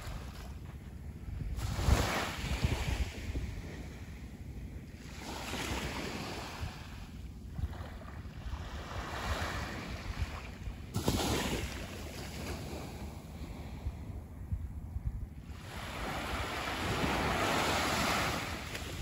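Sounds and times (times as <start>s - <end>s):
wind buffeting the microphone: 0.0s - 19.0s
small waves washing onto sand: 7.7s - 13.8s, 15.4s - 19.0s.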